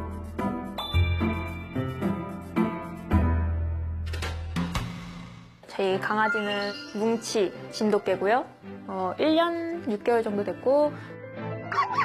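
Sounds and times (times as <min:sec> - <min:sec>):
bell-like ding: 0:00.8 - 0:02.0.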